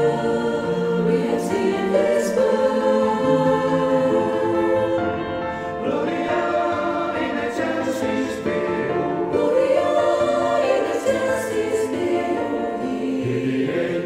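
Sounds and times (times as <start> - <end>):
church choir singing in harmony: 0.0 - 14.0.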